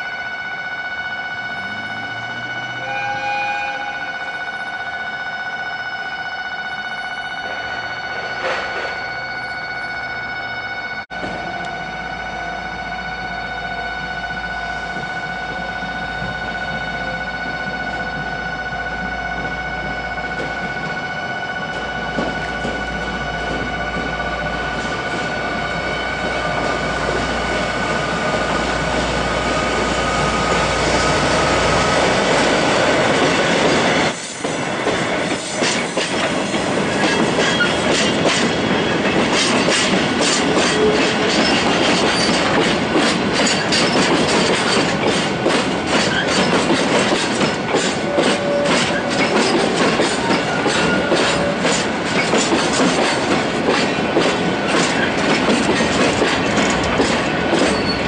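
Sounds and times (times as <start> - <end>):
diesel locomotive engine humming: 0.0 - 58.0
wheels clicking over rail joints: 34.4 - 58.0
wheel squeals: 57.6 - 58.0.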